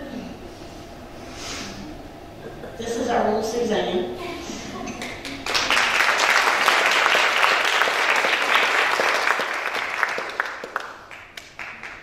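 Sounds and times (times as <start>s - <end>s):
congregation clapping: 5.0s - 12.0s.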